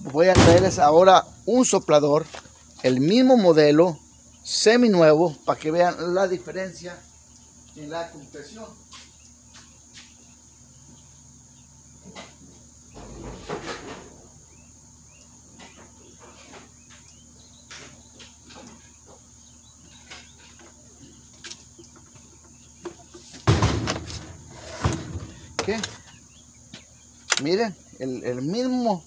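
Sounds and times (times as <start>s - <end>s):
crickets chirring: 0.0s - 29.0s
faint knocks and shuffling: 2.0s - 3.3s, 15.5s - 27.6s
knocking and handling noise: 22.8s - 26.9s.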